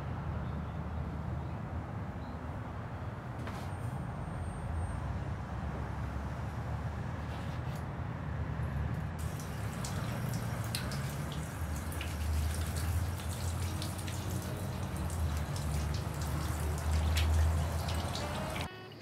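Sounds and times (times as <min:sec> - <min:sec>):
tap water running into sink: 0:09.2 - 0:18.7
water drips and splashes: 0:09.2 - 0:18.7.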